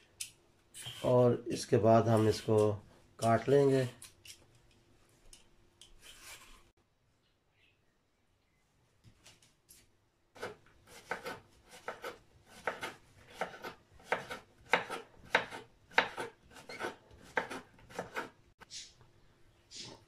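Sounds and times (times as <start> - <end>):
knife chopping on wooden board: 10.4 - 18.3.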